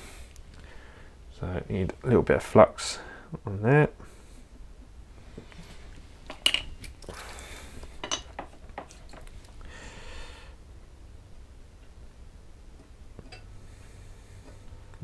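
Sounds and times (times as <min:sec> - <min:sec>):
tools clicking and clinking on bench: 0:08.0 - 0:09.3.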